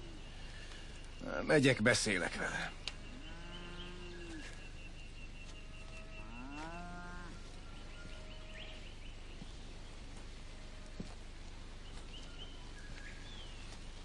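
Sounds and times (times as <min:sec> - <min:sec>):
cattle mooing: 0:03.2 - 0:04.4, 0:06.0 - 0:07.4.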